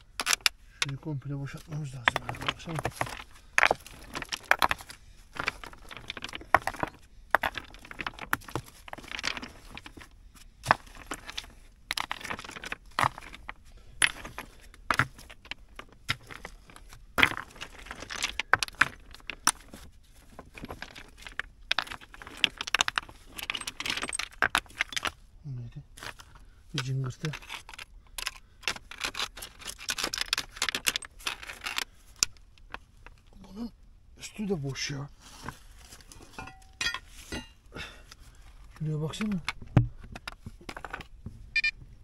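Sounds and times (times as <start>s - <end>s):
soil scraping: 0.0s - 25.2s, 34.6s - 37.7s
stones clinking and clattering: 0.0s - 25.3s, 25.9s - 33.4s, 35.4s - 37.7s, 38.8s - 42.0s.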